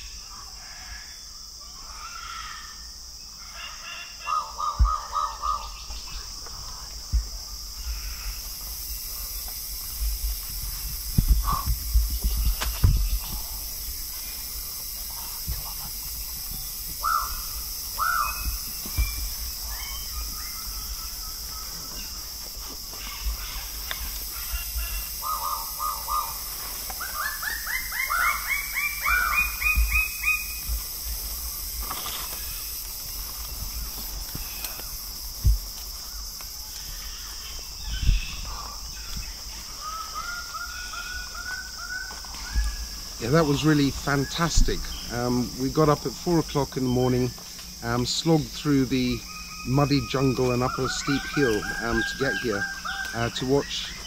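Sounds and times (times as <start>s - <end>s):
birds calling: 0.0s - 54.0s.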